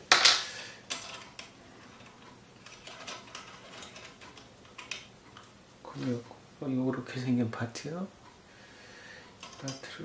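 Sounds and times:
small steel parts clinking: 0.2 - 5.1, 9.4 - 9.9.

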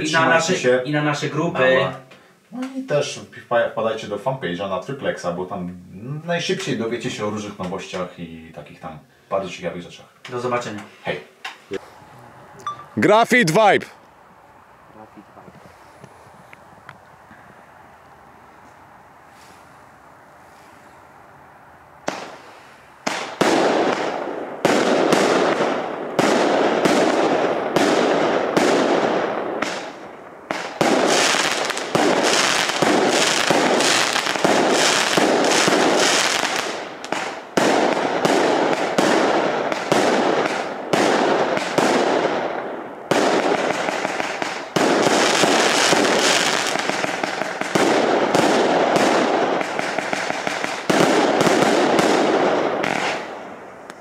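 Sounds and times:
firework shots: 22.0 - 53.7.

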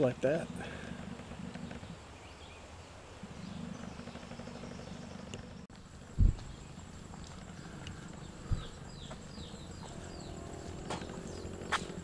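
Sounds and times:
steady low hum: 0.0 - 12.0
short dull thump: 6.2 - 6.5.

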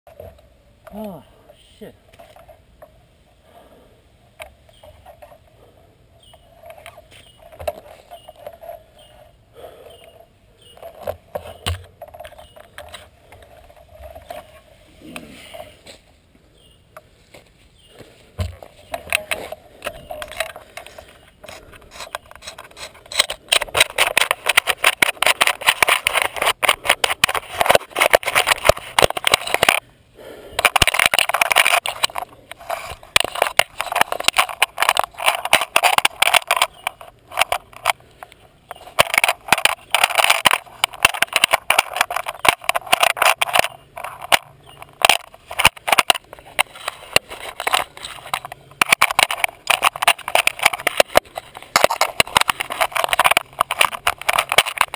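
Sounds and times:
bicycle pump strokes: 18.5 - 38.0.

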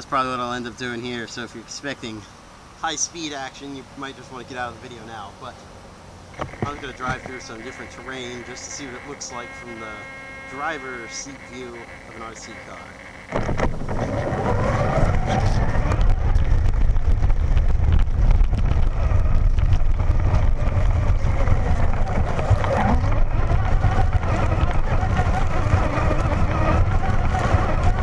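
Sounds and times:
chassis vibration rumble: 6.0 - 28.0
grass brushing: 6.3 - 16.1
toy truck motor whine: 6.3 - 16.4, 18.8 - 28.0
wind on microphone: 13.3 - 28.0.

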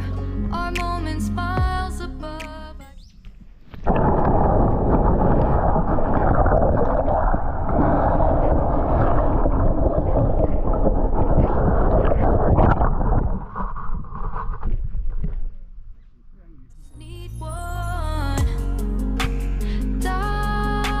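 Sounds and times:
wind buffeting microphone: 4.0 - 15.4.

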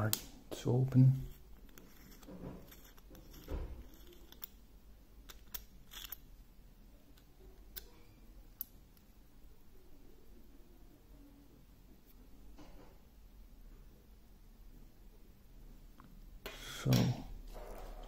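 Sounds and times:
small metallic clicks and rubs: 1.2 - 4.6, 5.2 - 6.4.

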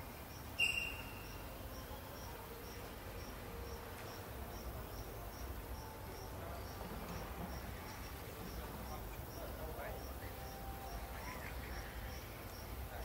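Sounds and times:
insect chirping: 0.0 - 13.0.

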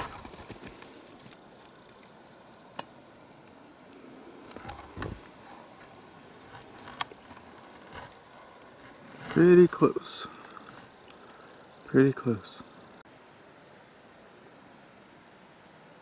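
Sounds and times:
faint steady hiss: 0.0 - 16.0
soft clicks and crunches: 3.5 - 11.8.

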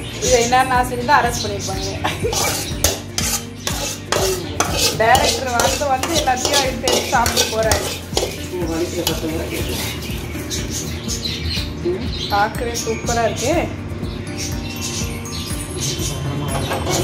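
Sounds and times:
spoon scraping ceramic plate: 2.3 - 10.6.

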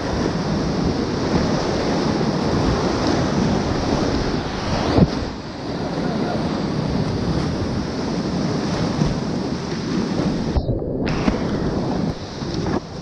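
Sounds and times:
rushing whitewater: 0.0 - 13.0
water splashing over boat: 0.0 - 13.0.

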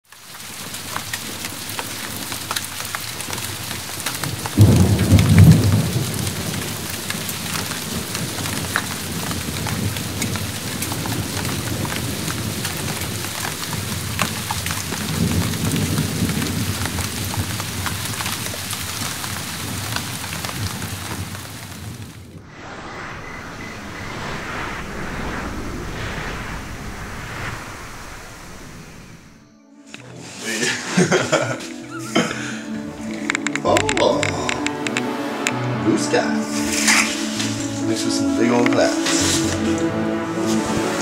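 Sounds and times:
raindrops ticking close by: 0.0 - 22.3, 32.2 - 35.7
heavy rain: 0.0 - 29.4, 30.0 - 41.0
thunder rumbling: 0.4 - 29.6.

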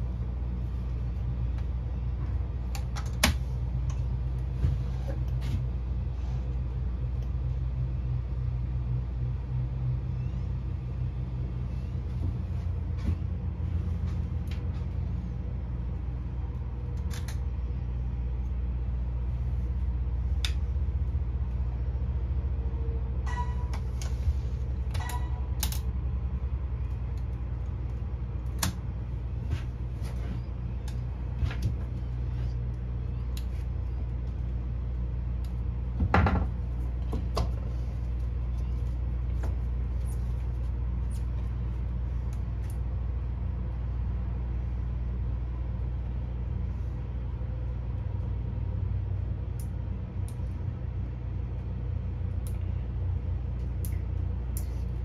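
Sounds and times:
low engine hum: 0.0 - 55.0.

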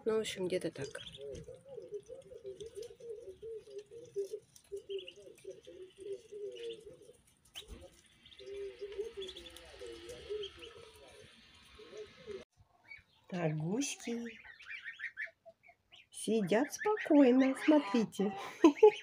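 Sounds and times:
ducklings trilling: 0.8 - 19.0
duckling high peep: 14.4 - 16.1.

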